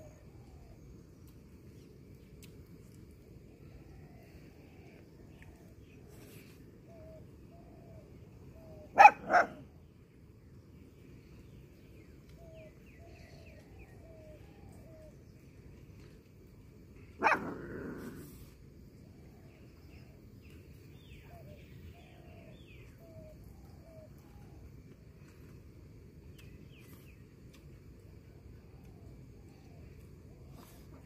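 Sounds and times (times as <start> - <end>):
dog barking: 8.9 - 9.6, 17.2 - 17.7.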